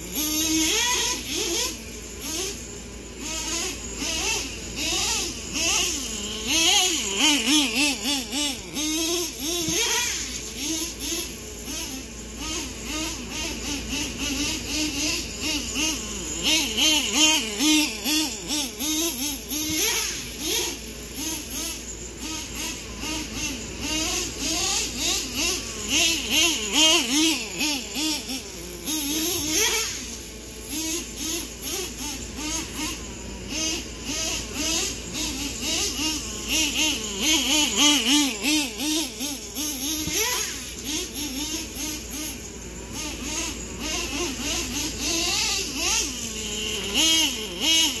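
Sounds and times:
nitro rc truck engine revving: 0.0s - 48.0s.

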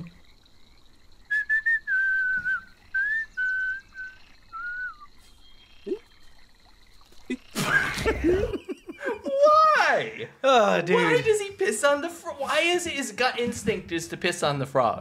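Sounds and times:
man whistling: 1.3s - 5.1s.

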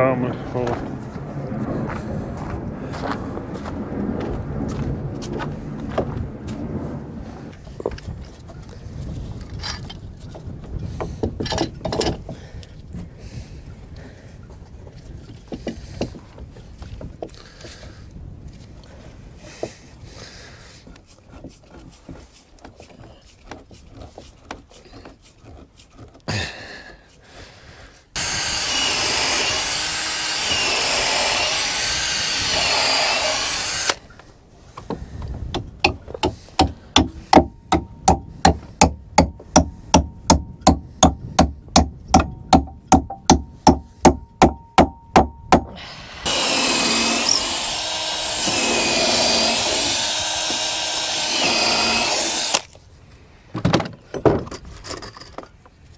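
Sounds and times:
power tool noise: 28.2s - 34.1s, 45.7s - 52.7s
sharp knocks: 35.5s - 45.8s.

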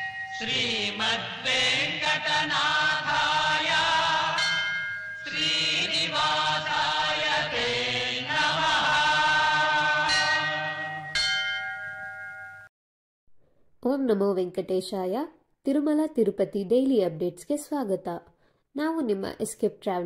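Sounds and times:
devotional chant singing: 0.0s - 11.2s.

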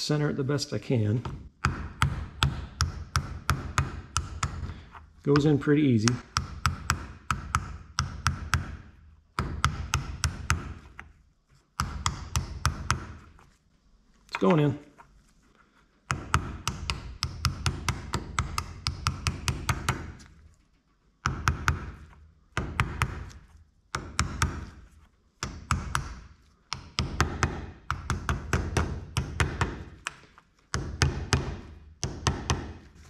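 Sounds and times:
hammer tapping on metal: 1.2s - 11.0s.

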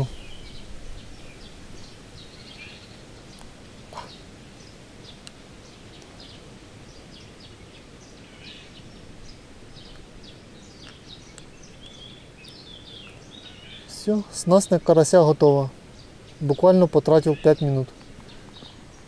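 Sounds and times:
low outdoor hum: 0.0s - 19.0s
small birds chirping: 0.0s - 19.0s.

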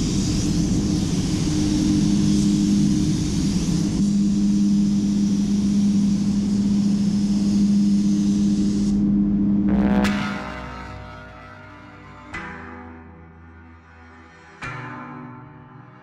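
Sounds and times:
spray gun air hissing: 0.0s - 9.1s
ventilation fans humming: 0.0s - 9.7s.

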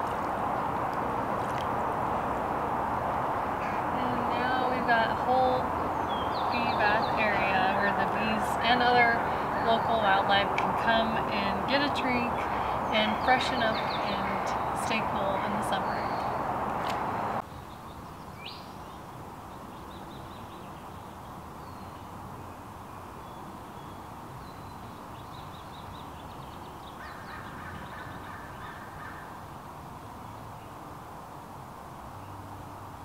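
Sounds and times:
steady background hush: 0.0s - 17.4s
birds chirping: 3.2s - 19.0s.

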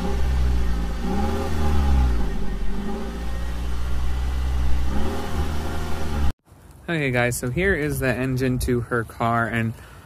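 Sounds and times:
car engine revving and idling: 0.0s - 6.4s.

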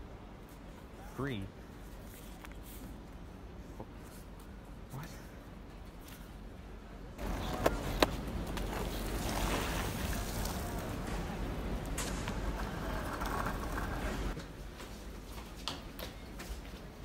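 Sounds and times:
skateboard clacks: 7.2s - 9.8s, 10.9s - 14.4s
skateboard wheels rolling on asphalt: 7.2s - 15.6s.

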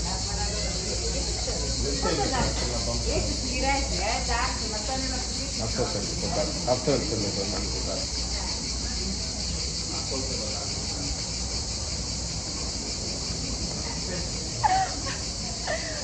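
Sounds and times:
insects buzzing: 0.0s - 16.0s.

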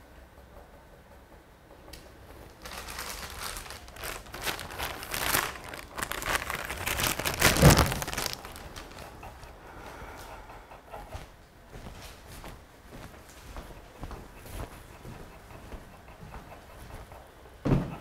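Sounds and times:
crinkling and rustling: 2.0s - 9.6s
loud crunch: 2.6s - 9.2s.

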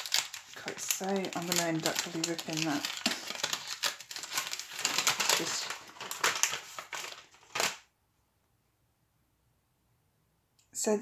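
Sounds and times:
gift bag crinkling and crackling: 0.0s - 7.8s.

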